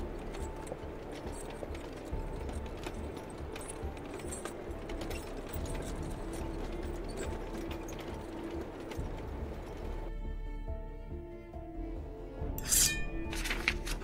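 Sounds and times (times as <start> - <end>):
dense irregular clicks and clanks: 0.0 - 10.1, 13.3 - 14.0
faint music: 0.0 - 14.0.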